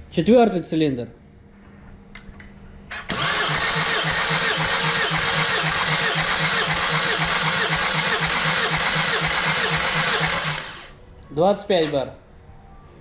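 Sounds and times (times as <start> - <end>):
starter motor cranking engine: 3.1 - 11.0.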